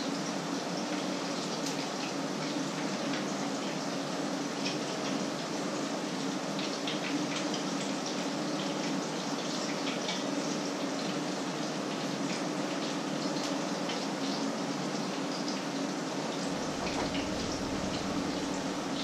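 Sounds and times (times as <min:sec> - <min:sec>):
food frying in oil: 0:00.0 - 0:19.0
low hum: 0:16.5 - 0:19.0.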